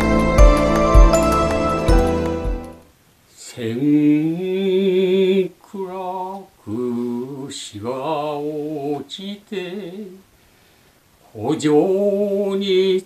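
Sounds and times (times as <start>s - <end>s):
instrumental music: 0.0s - 2.9s
man chanting poetry: 11.3s - 13.0s.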